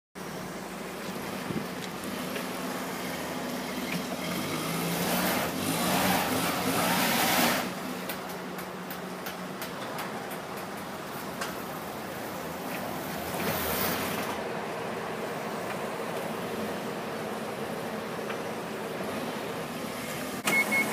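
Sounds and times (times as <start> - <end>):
forklift engine running: 0.2 - 20.9.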